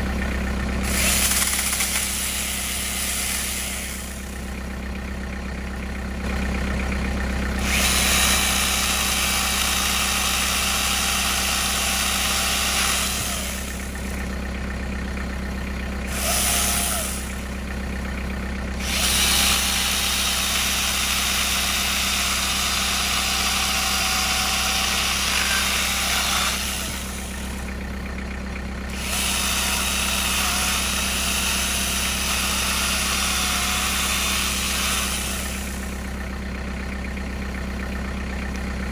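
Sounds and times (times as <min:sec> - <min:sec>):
low engine idle: 0:00.0 - 0:38.9
chainsaw cutting tree limbs: 0:00.8 - 0:04.3, 0:07.6 - 0:14.2, 0:16.1 - 0:17.4, 0:18.8 - 0:27.6, 0:28.9 - 0:36.0.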